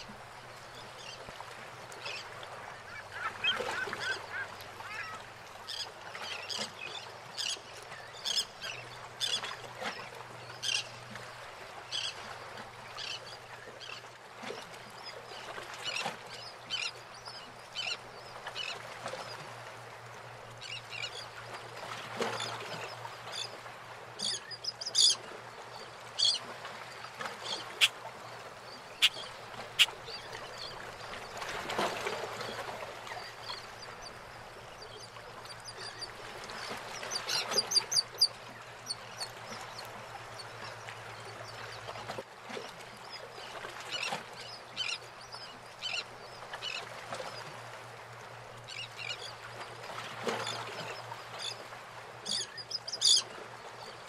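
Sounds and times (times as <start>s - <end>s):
water lapping around boats: 0.0s - 54.0s
birds calling: 2.6s - 5.9s, 27.4s - 31.5s.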